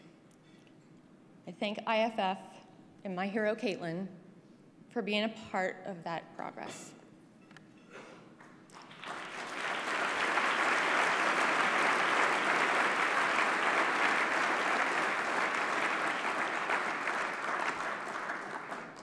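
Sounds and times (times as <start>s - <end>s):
audience applauding: 8.7s - 19.0s.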